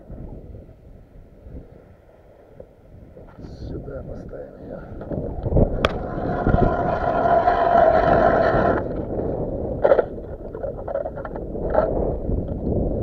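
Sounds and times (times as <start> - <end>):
ice auger grinding through ice: 5.8 - 9.2.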